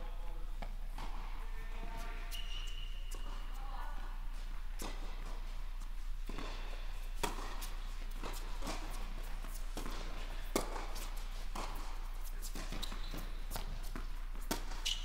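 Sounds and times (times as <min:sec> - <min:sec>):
tennis balls bouncing on hard court: 0:06.2 - 0:15.0
tennis balls struck by racquets: 0:06.2 - 0:15.0.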